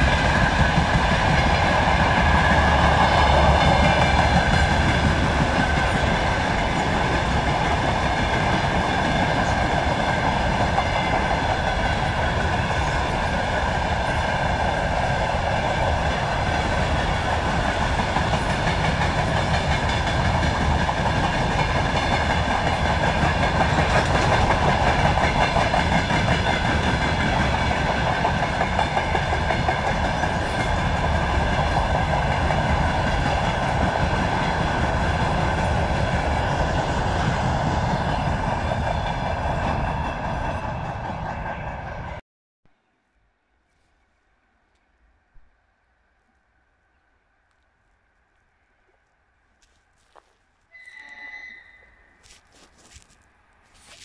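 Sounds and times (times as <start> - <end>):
train wheels rumbling on rails: 0.0 - 42.2.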